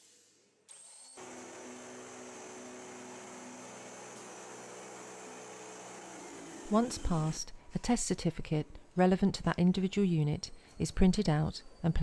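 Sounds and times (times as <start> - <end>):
machine hum with high whine: 1.2 - 7.5.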